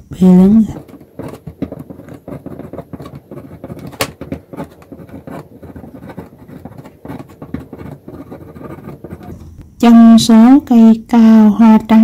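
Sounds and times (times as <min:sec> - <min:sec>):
pen scratching on paper: 0:00.2 - 0:09.4.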